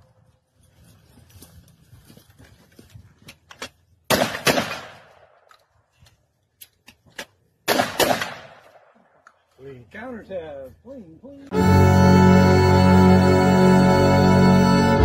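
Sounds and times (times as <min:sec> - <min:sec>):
shotgun blasts with echo: 0:04.1 - 0:05.4, 0:07.7 - 0:09.0.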